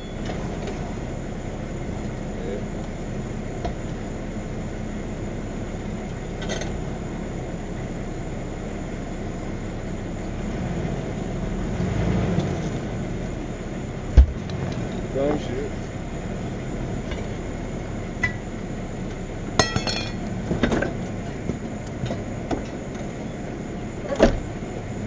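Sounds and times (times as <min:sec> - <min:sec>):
vehicle engine running: 0:00.0 - 0:25.0
tire bead breaking loose thud: 0:14.1 - 0:14.5, 0:19.6 - 0:20.9.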